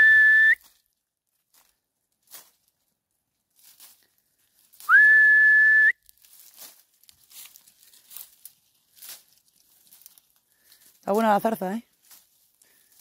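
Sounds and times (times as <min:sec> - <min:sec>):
person whistling a loud note: 0:00.0 - 0:00.6, 0:04.9 - 0:06.0
dry leaves and twigs crackling: 0:00.2 - 0:05.2, 0:05.8 - 0:13.0.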